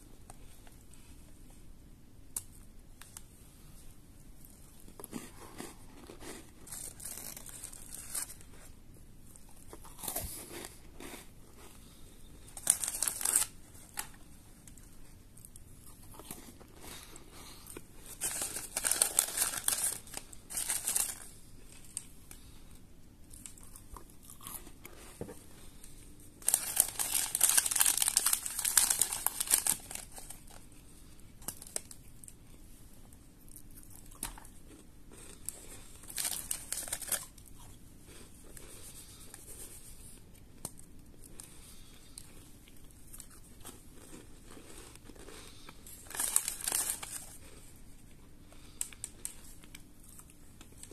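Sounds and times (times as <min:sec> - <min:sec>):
biscuits crunching: 0:04.2 - 0:22.6, 0:23.2 - 0:50.9
plastic wrapper crinkling: 0:06.6 - 0:08.6, 0:12.6 - 0:14.8, 0:18.0 - 0:22.4, 0:26.4 - 0:30.7, 0:31.4 - 0:32.0, 0:35.4 - 0:37.5, 0:46.0 - 0:47.6.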